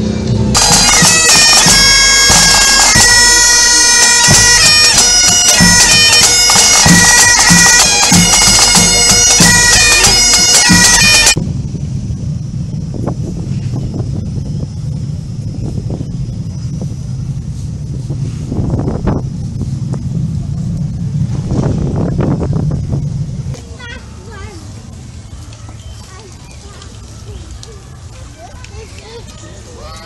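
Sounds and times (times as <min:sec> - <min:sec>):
snare and bass drums: 0:00.4 - 0:11.5
bagpipes playing melody: 0:00.5 - 0:11.4
low rumble: 0:11.4 - 0:23.6.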